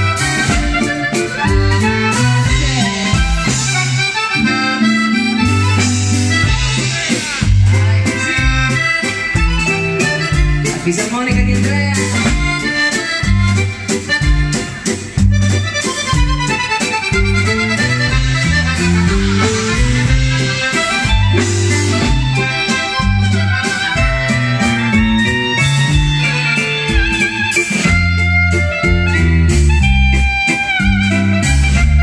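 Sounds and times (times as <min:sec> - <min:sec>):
clarinet playing melody: 0:00.0 - 0:07.2, 0:08.1 - 0:10.8, 0:12.1 - 0:32.0
bass line: 0:00.0 - 0:32.0
button accordion: 0:00.0 - 0:32.0
drum kit steady beat: 0:00.0 - 0:32.0.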